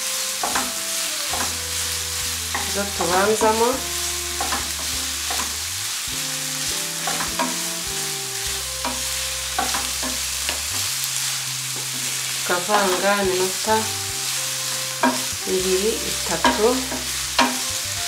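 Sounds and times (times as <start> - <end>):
vegetables sizzling in a frying pan: 0.0 - 18.0
spatula scraping and tapping pan: 0.4 - 1.6, 2.5 - 3.6, 4.4 - 5.6, 7.0 - 7.6, 8.8 - 10.9, 14.6 - 15.5, 16.3 - 17.7.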